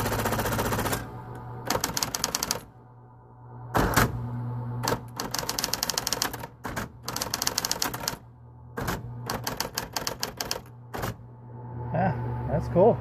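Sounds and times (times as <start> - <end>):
typewriter motor hum: 0.0 - 2.7, 4.8 - 11.2
typewriter keys striking: 1.7 - 2.6, 4.8 - 8.2, 8.8 - 11.2.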